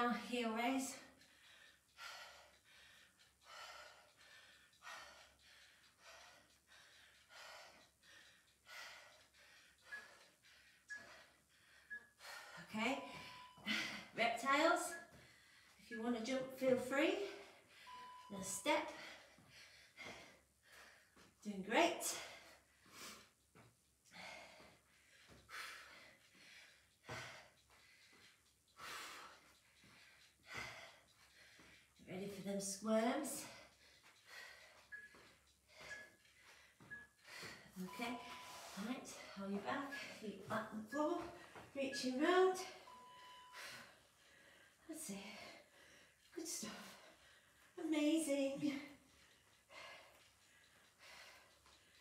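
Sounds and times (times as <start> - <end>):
woman breathing hard: 1.1 - 14.2, 18.9 - 21.4, 22.0 - 32.0, 33.0 - 40.2, 42.6 - 47.8, 48.8 - 52.0.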